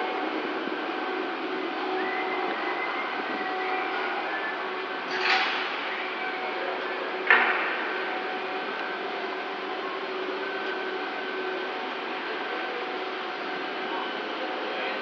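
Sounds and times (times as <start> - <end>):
machinery drone: 0.0 - 15.0.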